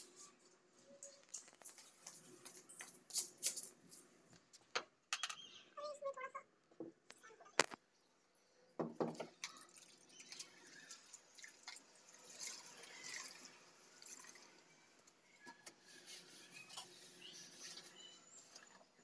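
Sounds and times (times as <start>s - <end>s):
knock: 8.8s - 9.2s
water splashing in a plastic bucket: 9.0s - 14.8s.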